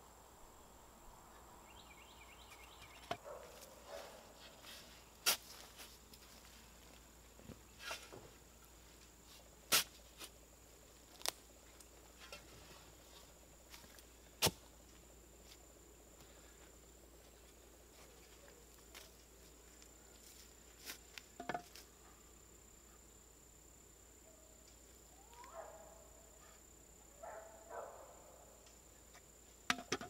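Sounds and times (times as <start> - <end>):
steel bar tamping soil: 9.7 - 10.3.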